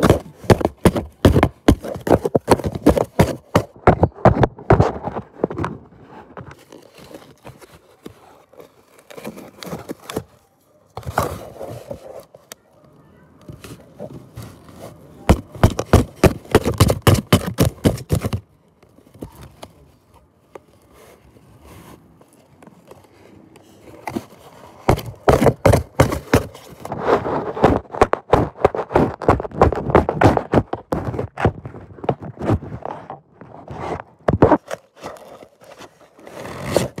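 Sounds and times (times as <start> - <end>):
quiet rustling: 4.9 - 15.8, 18.7 - 28.0
cardboard tearing: 6.6 - 10.3, 15.3 - 18.4, 24.0 - 33.1, 33.7 - 37.0.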